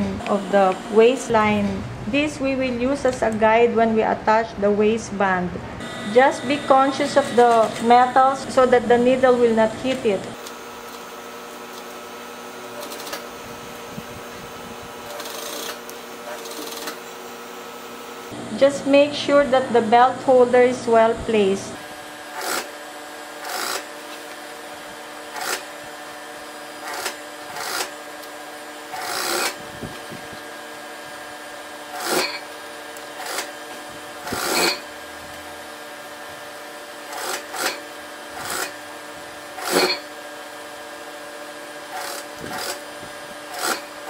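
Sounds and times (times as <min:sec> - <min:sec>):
steady hum: 0:00.0 - 0:44.0
sewing machine stitching: 0:15.1 - 0:17.0, 0:22.3 - 0:22.8, 0:23.4 - 0:24.0, 0:25.3 - 0:25.7, 0:26.8 - 0:28.0, 0:28.9 - 0:29.6, 0:31.9 - 0:32.5, 0:33.2 - 0:33.6, 0:34.2 - 0:34.9, 0:37.1 - 0:38.8, 0:39.5 - 0:40.1, 0:41.9 - 0:44.0.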